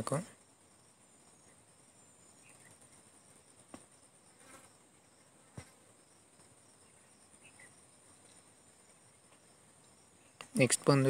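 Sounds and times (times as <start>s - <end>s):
faint high-pitched whine: 0.0s - 11.0s.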